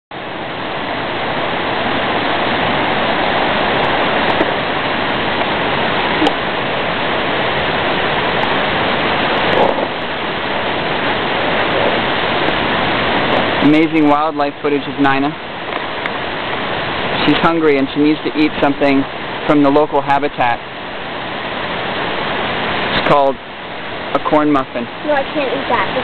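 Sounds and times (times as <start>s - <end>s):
running water rushing: 0.1s - 26.0s.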